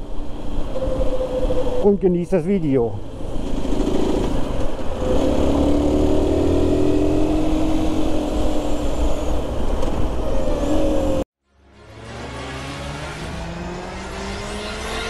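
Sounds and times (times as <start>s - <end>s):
motorcycle engine riding: 3.0s - 11.2s.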